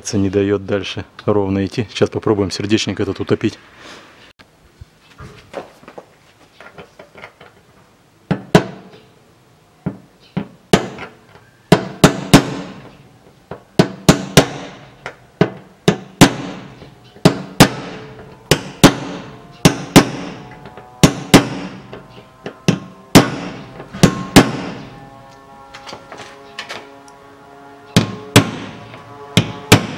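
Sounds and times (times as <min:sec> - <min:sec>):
hammer striking metal: 0:11.7 - 0:12.9, 0:13.6 - 0:26.8, 0:27.9 - 0:29.9.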